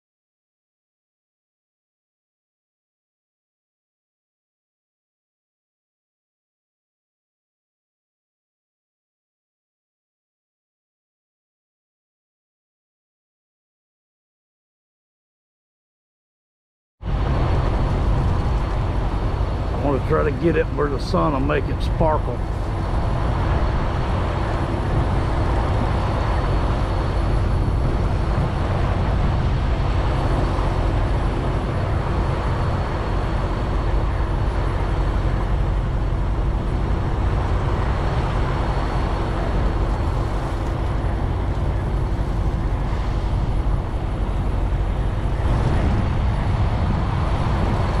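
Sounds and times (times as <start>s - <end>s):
highway traffic rumble: 17.0s - 48.0s.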